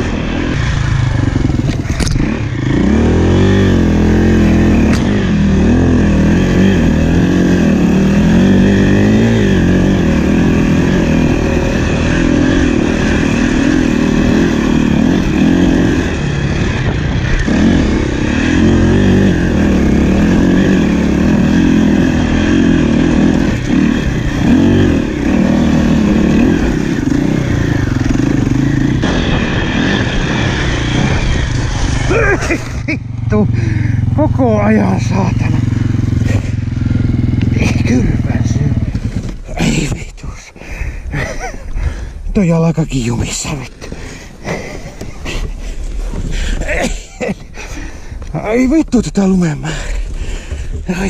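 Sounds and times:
dirt bike engine revving: 0.0s - 40.0s.

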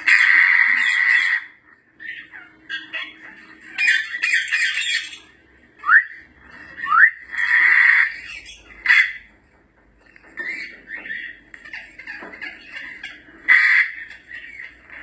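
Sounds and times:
parrot whistling: 0.0s - 9.2s
parrot squawking: 0.0s - 9.4s, 10.0s - 15.0s
parrot chatter: 0.0s - 15.0s.

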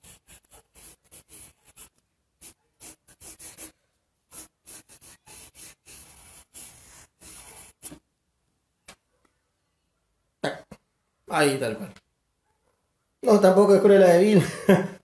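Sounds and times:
pencil scratching on paper: 0.0s - 8.0s.

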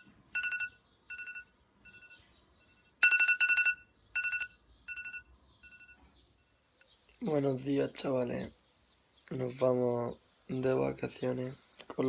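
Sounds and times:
phone alarm beeping: 0.0s - 6.6s.

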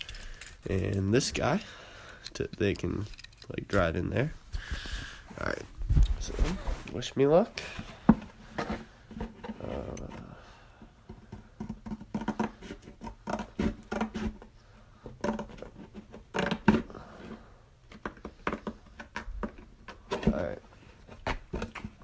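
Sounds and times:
scissors cutting cardboard: 11.6s - 14.4s.

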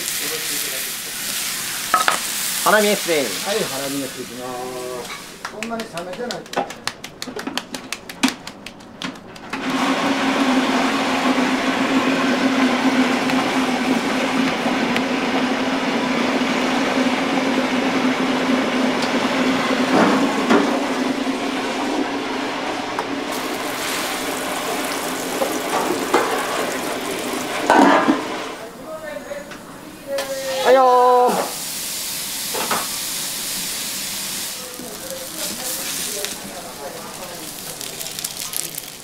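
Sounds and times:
patty sizzling in oil: 0.0s - 5.6s, 23.3s - 28.6s, 30.2s - 39.0s
meat patty slapped between palms: 5.4s - 9.5s.

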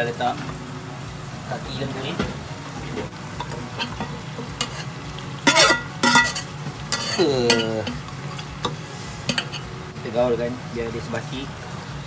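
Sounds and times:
food sizzling in oil: 0.0s - 12.0s
metal skimmer clanking on pots: 3.4s - 8.0s, 8.6s - 9.6s.

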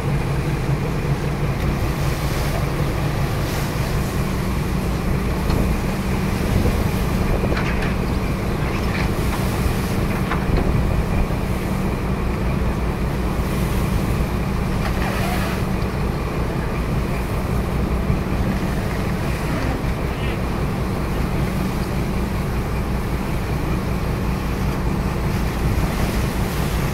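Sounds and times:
boat diesel engines droning: 0.0s - 26.9s
water washing between hulls: 0.0s - 26.9s
wind buffeting microphone: 0.8s - 13.0s.

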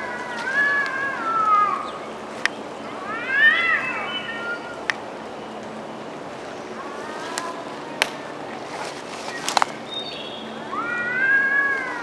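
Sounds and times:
cats yowling: 0.0s - 2.0s, 3.0s - 4.8s, 10.6s - 12.0s.

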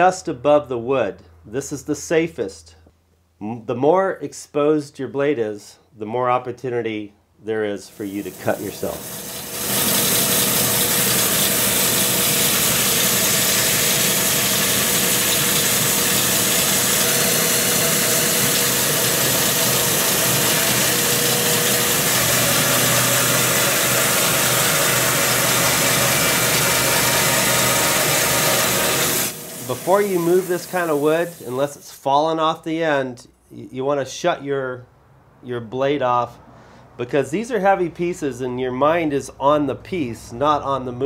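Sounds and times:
bandsaw cutting log: 8.0s - 31.8s.

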